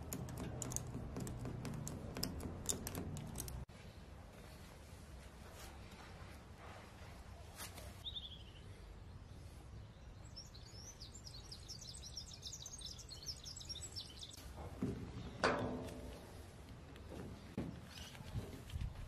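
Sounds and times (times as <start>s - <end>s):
plastic hose fittings knocking: 0.0s - 3.6s
songbird chirping: 7.9s - 14.4s.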